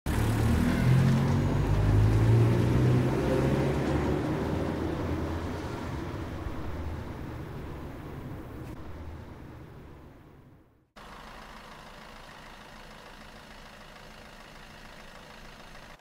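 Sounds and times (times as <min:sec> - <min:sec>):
car driving past: 0:00.1 - 0:10.6.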